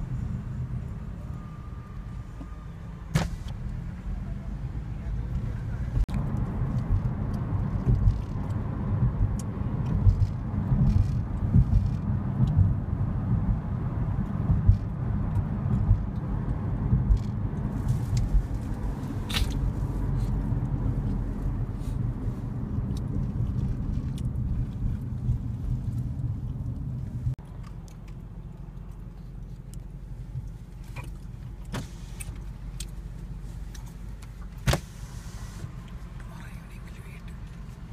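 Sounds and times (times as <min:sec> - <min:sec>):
car road and engine rumble: 0:00.0 - 0:37.9.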